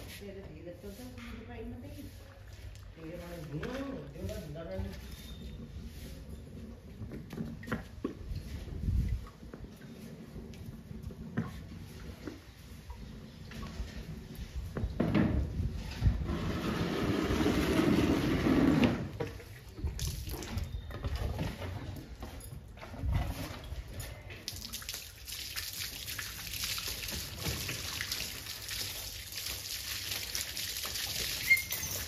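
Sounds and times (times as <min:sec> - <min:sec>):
hose water splashing on concrete: 0:00.0 - 0:32.0.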